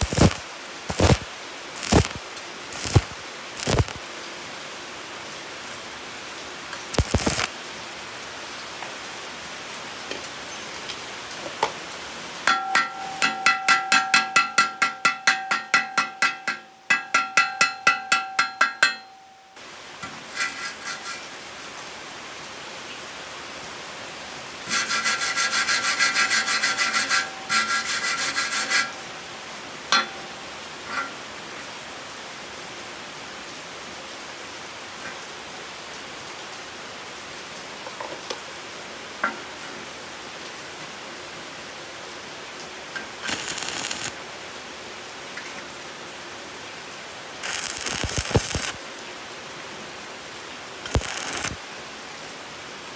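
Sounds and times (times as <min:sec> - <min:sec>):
wire brush scrubbing metal tube: 0:00.0 - 0:01.2, 0:01.8 - 0:04.0, 0:07.0 - 0:07.5, 0:20.1 - 0:21.3, 0:24.7 - 0:29.0, 0:43.2 - 0:44.1, 0:47.4 - 0:48.8, 0:50.9 - 0:51.6
steady hiss: 0:00.0 - 0:17.2, 0:18.6 - 0:36.3, 0:42.3 - 0:52.9.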